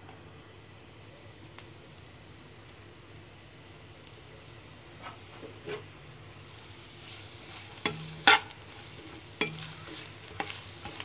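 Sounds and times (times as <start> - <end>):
onions sizzling in oil: 0.0 - 11.0
spatula knocking against pan: 9.4 - 10.6.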